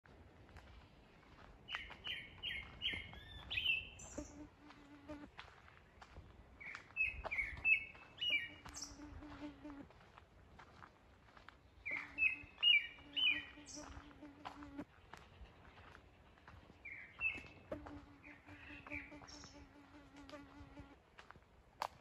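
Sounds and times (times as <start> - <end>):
high bird chirps: 1.7 - 4.4, 6.6 - 9.1, 11.8 - 14.1
flying insect buzzing: 4.1 - 5.3, 8.5 - 9.8, 13.0 - 14.8, 17.7 - 21.0.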